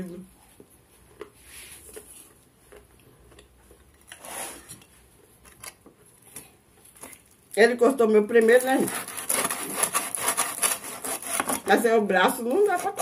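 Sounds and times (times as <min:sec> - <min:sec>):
brief scraping: 0:04.2 - 0:04.8.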